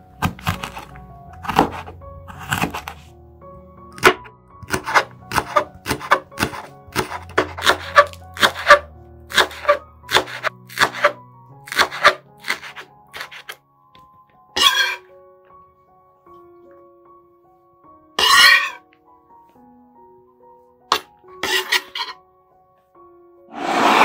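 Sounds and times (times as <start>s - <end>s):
soft background music: 0.0s - 24.0s
knife chopping on cutting board: 0.2s - 3.0s, 4.0s - 13.6s.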